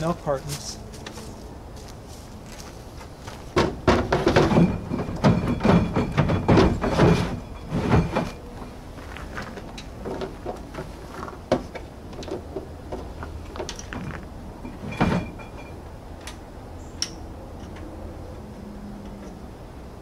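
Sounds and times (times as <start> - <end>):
wooden boards knocking: 3.5 - 8.3.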